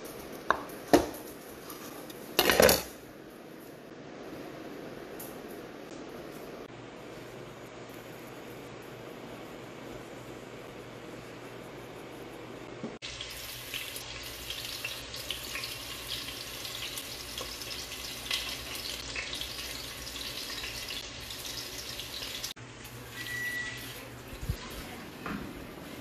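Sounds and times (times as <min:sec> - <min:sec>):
short high tone: 0:23.1 - 0:24.0.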